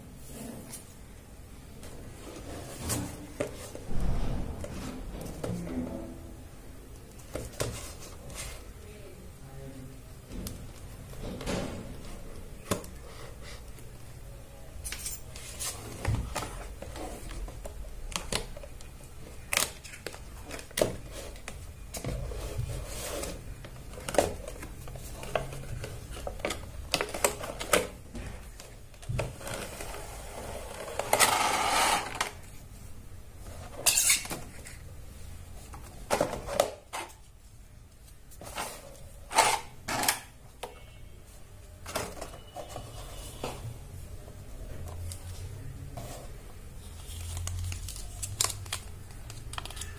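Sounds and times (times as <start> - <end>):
cardboard rustling scrape: 1.9 - 5.6, 20.9 - 26.3, 29.3 - 32.6.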